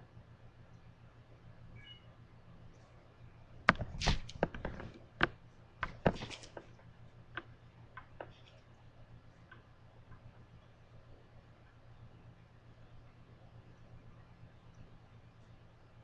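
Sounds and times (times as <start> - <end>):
low steady hum: 0.0 - 16.0
clicks taps and knocks: 3.6 - 8.6.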